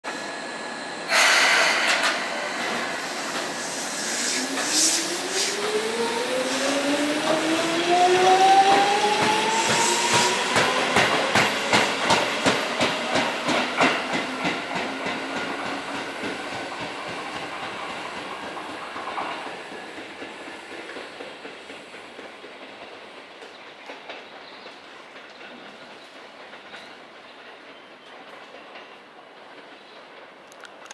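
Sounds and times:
air hiss: 0:01.1 - 0:05.7.

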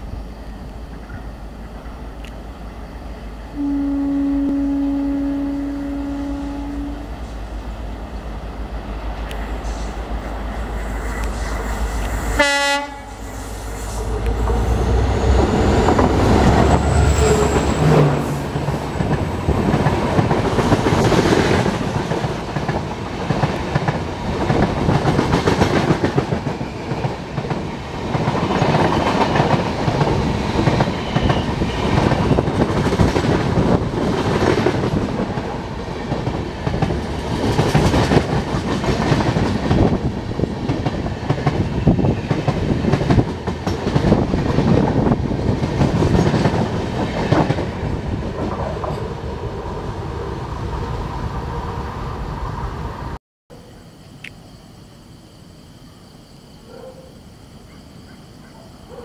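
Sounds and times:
train wheels rumbling: 0:00.0 - 0:53.2
locomotive horn blast: 0:03.6 - 0:07.4, 0:12.4 - 0:13.3
clickety-clack over rail joints: 0:15.5 - 0:49.2.

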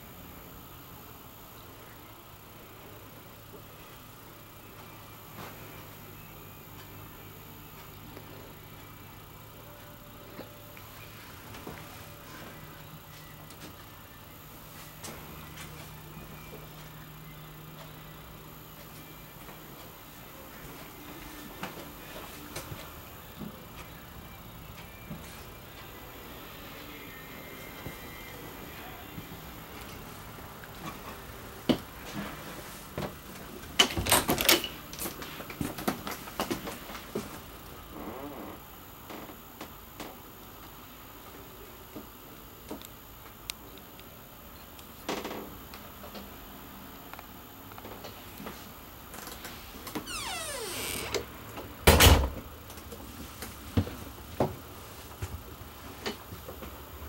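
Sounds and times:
door shutting with thud: 0:51.9 - 0:52.4.

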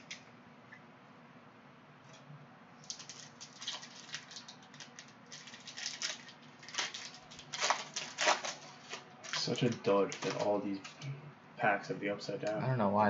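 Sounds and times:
foil wrapper crinkling: 0:02.8 - 0:11.0.

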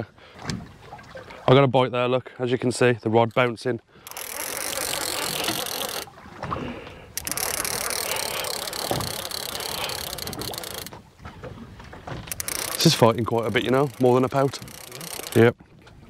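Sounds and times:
fishing reel cranking: 0:04.0 - 0:06.1, 0:07.1 - 0:10.9, 0:12.3 - 0:15.6.

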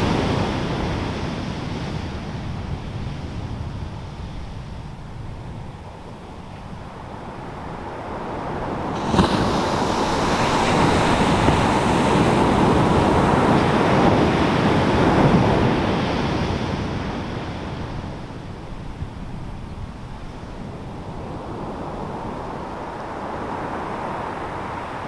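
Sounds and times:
wave wash rushing up shore: 0:00.0 - 0:25.0
wave crashing: 0:06.9 - 0:19.2.

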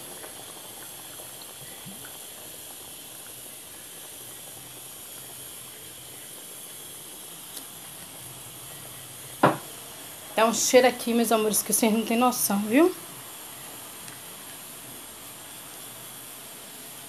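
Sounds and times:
stew simmering with hiss: 0:00.0 - 0:17.0.

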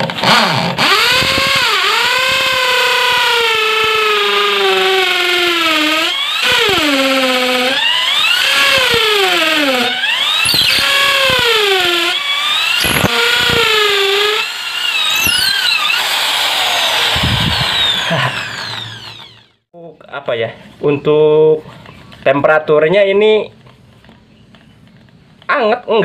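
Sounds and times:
hammer drill boring into concrete: 0:00.0 - 0:19.6.

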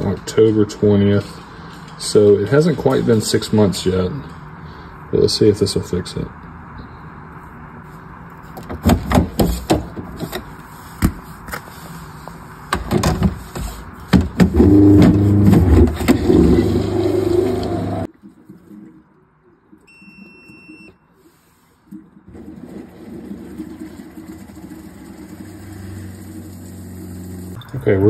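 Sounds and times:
short electronic beep: 0:19.9 - 0:21.1.

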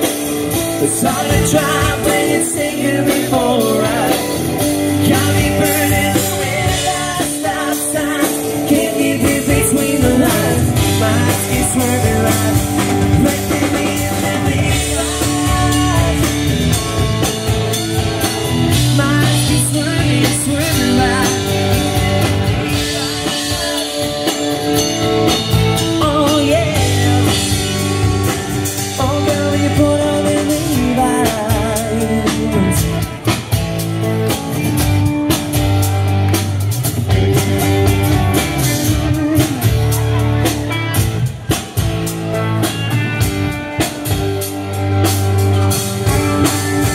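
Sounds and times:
country-rock band playing: 0:00.0 - 0:46.9
melodic guitar lead line: 0:00.0 - 0:46.9.

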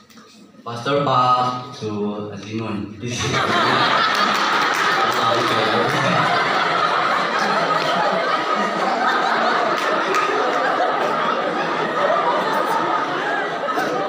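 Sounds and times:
crowd laughing and chattering: 0:03.0 - 0:14.0.

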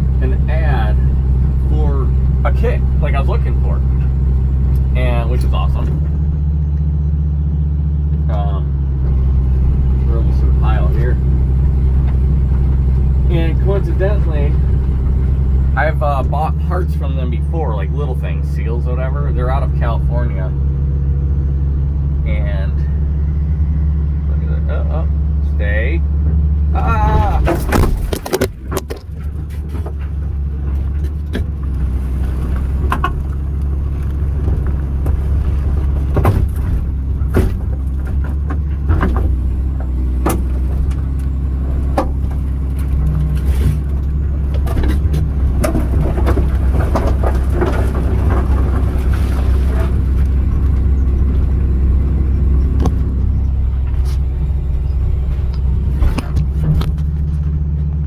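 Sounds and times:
excavator diesel engine running: 0:00.0 - 0:58.0
wood cracking and snapping: 0:27.4 - 0:51.2.

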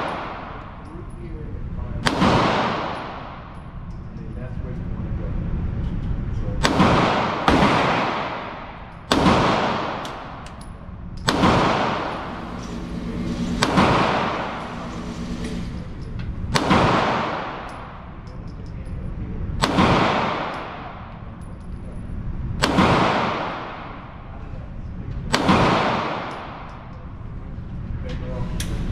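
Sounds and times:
pistol shots echoing: 0:00.0 - 0:00.8, 0:02.0 - 0:03.6, 0:06.6 - 0:10.6, 0:11.2 - 0:15.1, 0:16.5 - 0:18.2, 0:19.6 - 0:21.2, 0:22.6 - 0:24.2, 0:25.3 - 0:26.9.

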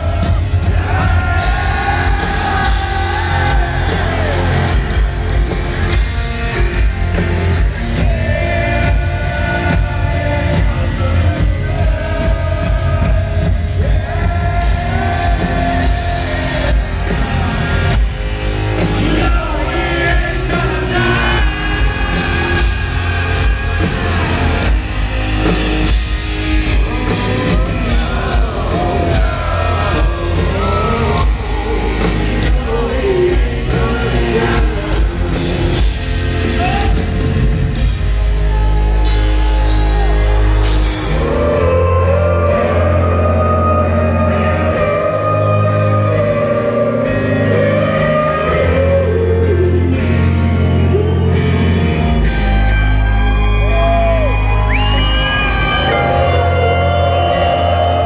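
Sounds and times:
distorted electric guitar: 0:00.0 - 0:58.0
heavy bass: 0:00.0 - 0:58.0
live rock band: 0:00.0 - 0:58.0
person singing: 0:18.8 - 0:37.3, 0:38.5 - 0:52.1, 0:53.4 - 0:58.0.

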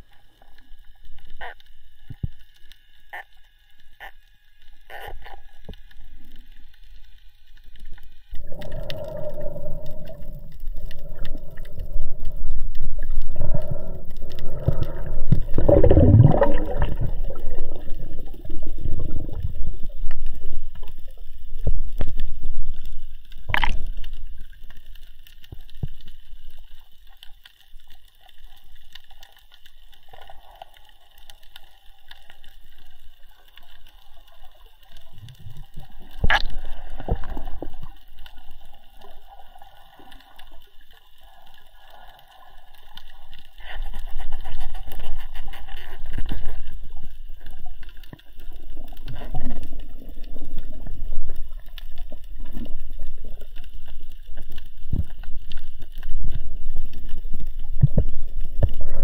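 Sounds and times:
faint steady hiss: 0:00.0 - 0:59.0
water gurgling and rushing: 0:08.4 - 0:24.3.

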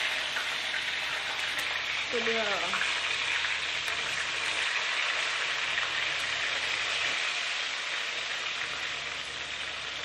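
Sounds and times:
chilies and garlic sizzling in oil: 0:00.0 - 0:10.0.

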